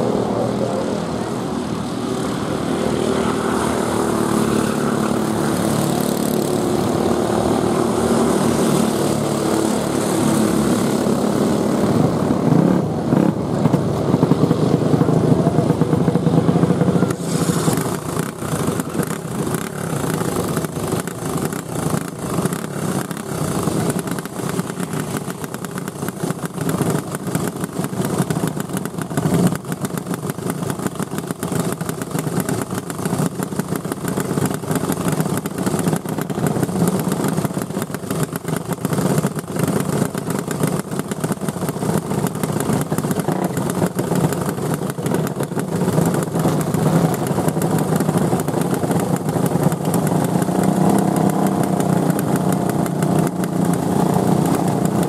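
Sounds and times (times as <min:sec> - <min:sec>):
go-kart engines revving: 0:00.0 - 0:55.0.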